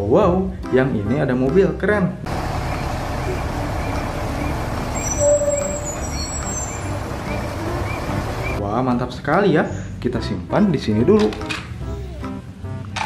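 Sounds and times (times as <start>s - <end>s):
diesel engine rumbling: 2.2s - 8.6s
traffic hiss: 2.3s - 8.6s
reversing beeper chirps: 2.4s - 8.6s.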